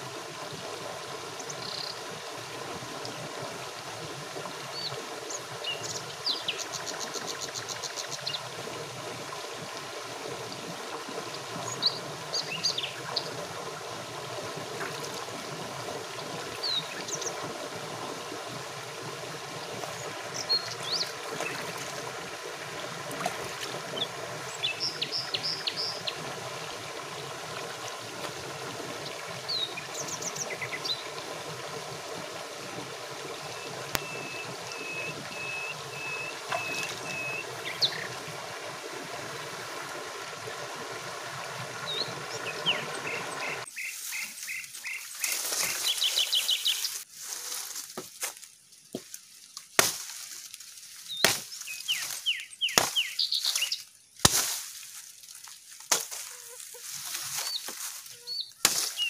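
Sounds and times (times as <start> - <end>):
stream running: 0.0 - 59.0
small birds calling: 1.4 - 2.0, 4.7 - 8.5, 11.6 - 13.4, 23.9 - 26.2, 33.5 - 38.2, 41.8 - 47.0, 51.1 - 53.9, 57.3 - 59.0
sharp knocks and cracks: 49.8 - 50.3, 51.2 - 52.1, 52.8 - 53.0, 54.2 - 54.6, 58.6 - 59.0.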